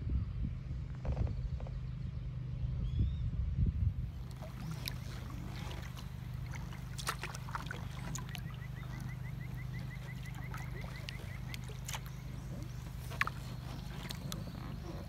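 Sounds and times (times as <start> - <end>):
steady low rumble: 0.0 - 15.0
water splashing off paddle: 4.2 - 15.0.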